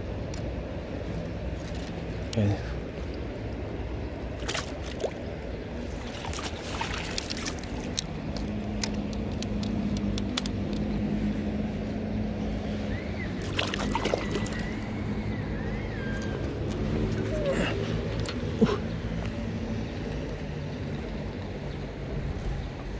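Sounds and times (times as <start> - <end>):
rushing river water: 1.4 - 8.8, 13.3 - 18.8
sharp handling clicks: 7.9 - 11.0.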